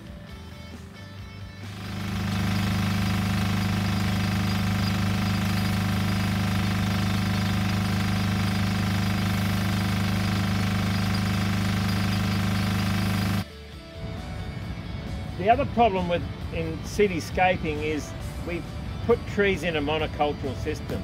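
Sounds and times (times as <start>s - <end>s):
motor humming: 1.6s - 13.4s.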